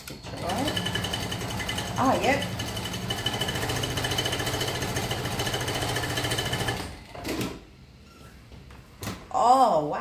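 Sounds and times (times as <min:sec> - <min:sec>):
sewing machine stitching: 0:00.2 - 0:07.6.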